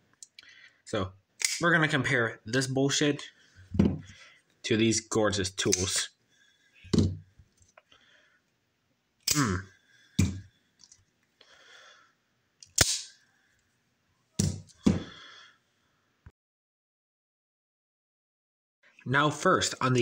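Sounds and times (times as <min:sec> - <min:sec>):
knives knocking on mat: 0:10.2 - 0:10.4, 0:14.4 - 0:15.1.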